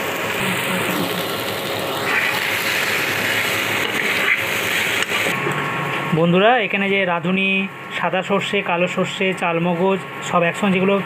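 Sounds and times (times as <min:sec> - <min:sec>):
vegetables sizzling in oil: 0:00.0 - 0:05.4.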